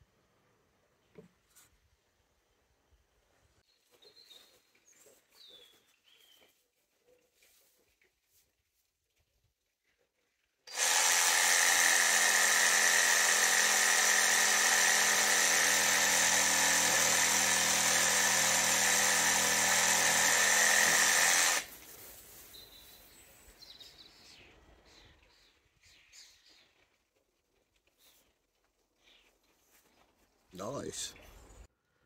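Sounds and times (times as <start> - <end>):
reciprocating saw cutting branch: 10.7 - 21.7.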